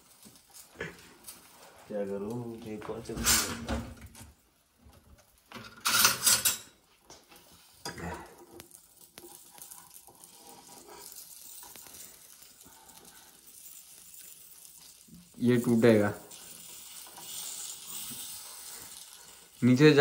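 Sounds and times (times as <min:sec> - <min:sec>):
omelette sizzling in a pan: 0:00.0 - 0:03.6, 0:04.3 - 0:20.0
metal utensils rattling in drawer: 0:05.7 - 0:06.7.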